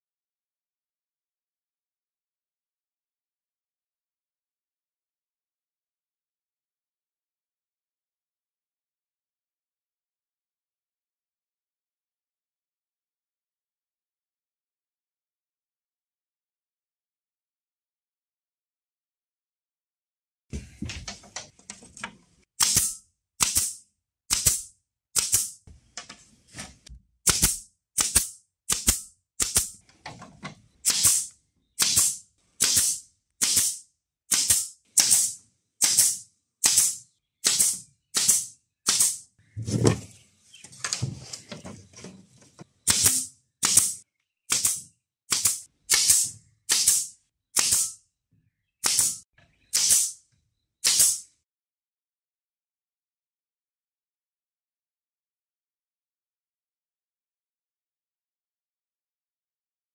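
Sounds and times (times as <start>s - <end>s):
nail gun firing: 22.6s - 25.6s, 27.3s - 29.8s, 30.8s - 39.2s, 42.8s - 48.0s, 48.8s - 50.2s, 50.8s - 51.4s.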